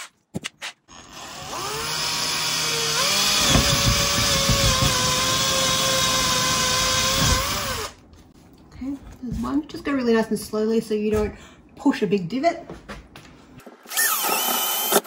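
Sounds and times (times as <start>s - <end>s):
drill motor whine: 13.9s - 15.0s.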